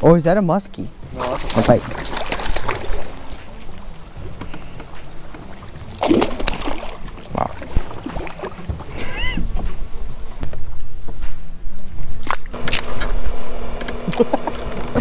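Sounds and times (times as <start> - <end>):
fish splashing in water: 1.2 - 3.6, 5.6 - 9.0.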